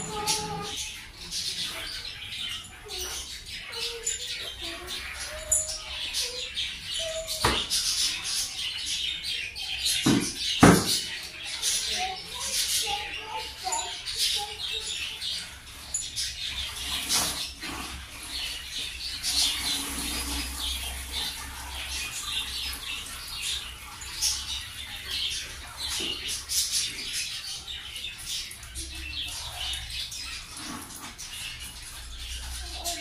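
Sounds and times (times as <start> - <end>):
small birds chirping: 0.0 - 33.0.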